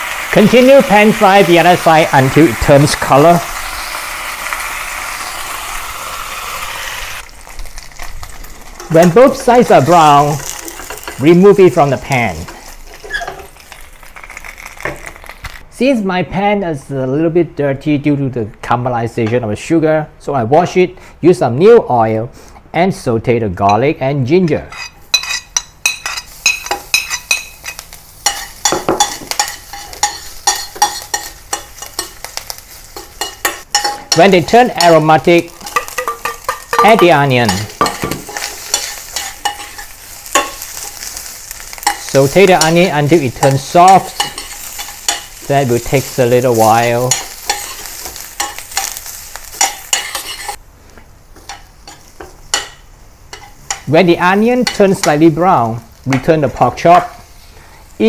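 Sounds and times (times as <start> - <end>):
garlic sizzling in hot oil: 0.0 - 15.7, 25.0 - 50.6, 51.2 - 58.0
metal spoon scraping a pan: 9.9 - 11.3, 12.4 - 14.6, 24.7 - 50.6, 51.4 - 53.9.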